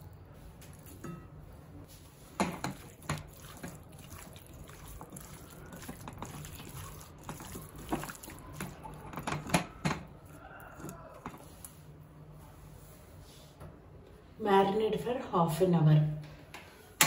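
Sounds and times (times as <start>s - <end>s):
hands squelching raw chicken: 2.6s - 11.8s.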